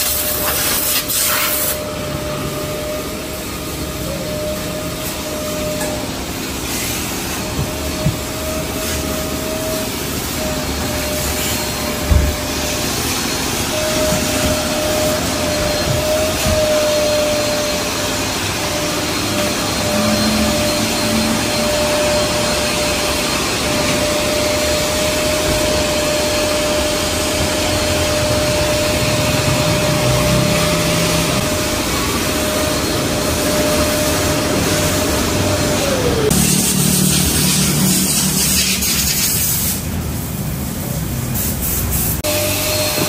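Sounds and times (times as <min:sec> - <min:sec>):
motor whine: 0:01.7 - 0:38.4
loud rushing noise: 0:09.6 - 0:42.9.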